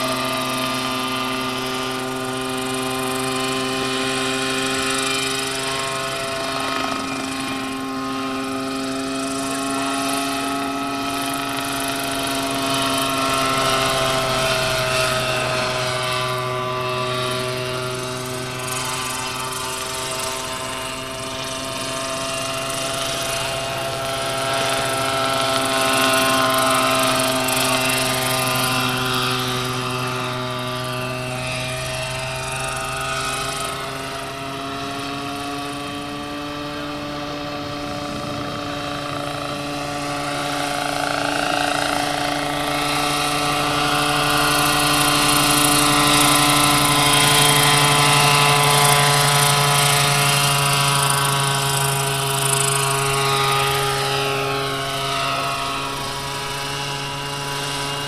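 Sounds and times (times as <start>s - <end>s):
model helicopter rotor whine: 0.0s - 58.0s.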